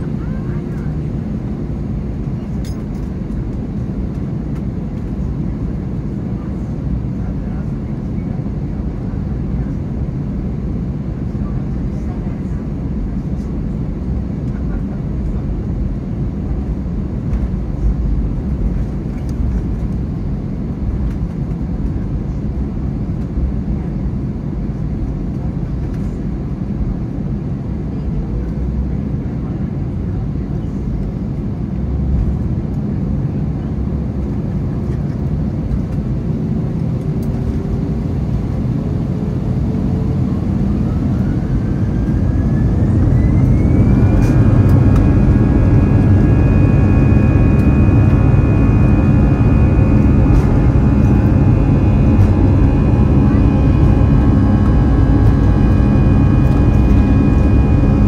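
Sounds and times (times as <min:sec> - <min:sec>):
jet engines spooling up: 0:40.8 - 0:58.0.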